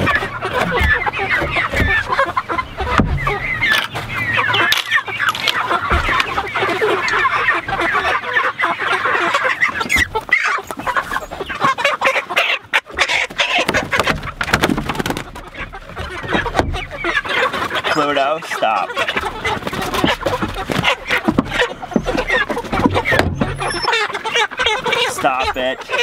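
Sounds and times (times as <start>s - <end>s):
chickens clucking and squawking: 0.0s - 26.0s
wings flapping: 13.2s - 17.7s.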